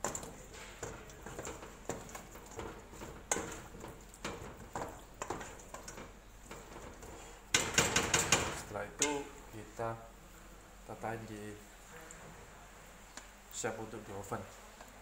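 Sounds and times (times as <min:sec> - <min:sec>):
wooden spoon scraping metal bowl: 0:00.0 - 0:09.3.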